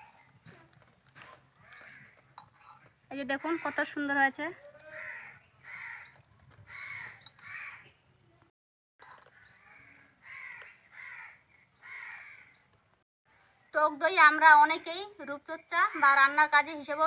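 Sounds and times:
crow cawing: 3.4 - 7.9, 9.6 - 12.6.

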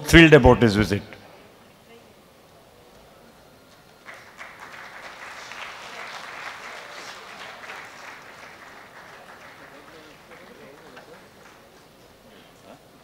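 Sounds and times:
audience applauding: 3.9 - 12.3.

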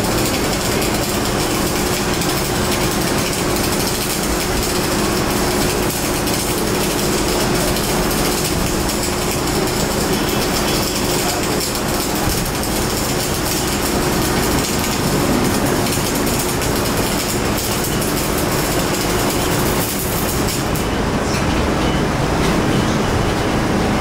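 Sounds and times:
welding arc crackling: 0.0 - 21.0.

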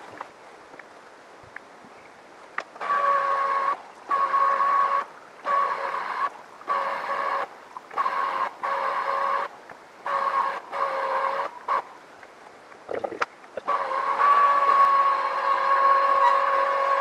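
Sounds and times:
electric juicer motor whining: 13.7 - 17.0.

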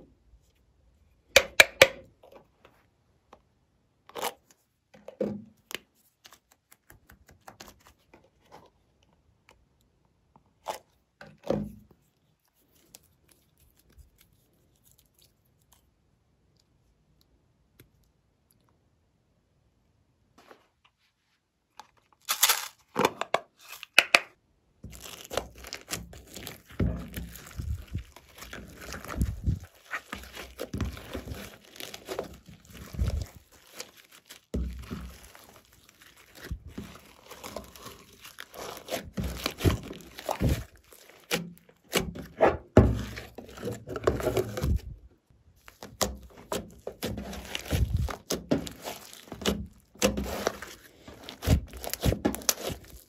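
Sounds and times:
slime squelching and popping: 24.8 - 45.0, 45.6 - 53.0.

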